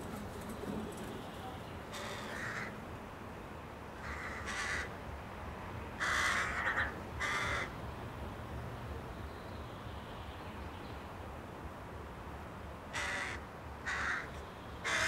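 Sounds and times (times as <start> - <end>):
crow cawing: 1.9 - 2.8, 4.0 - 4.9, 6.0 - 7.8, 12.9 - 15.0.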